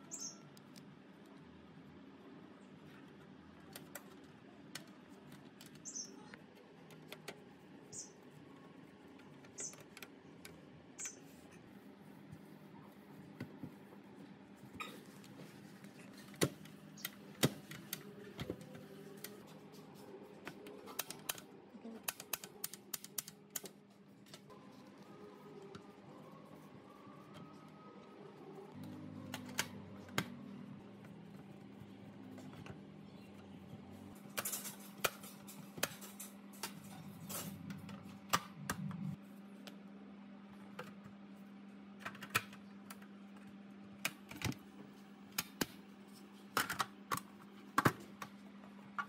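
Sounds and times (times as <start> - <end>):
small parts clicking and tapping: 20.4 - 24.5.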